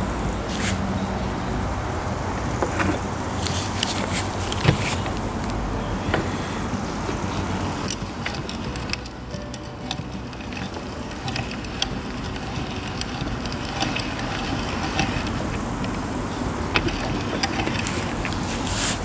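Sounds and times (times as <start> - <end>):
spice mill grinding: 7.1 - 19.0.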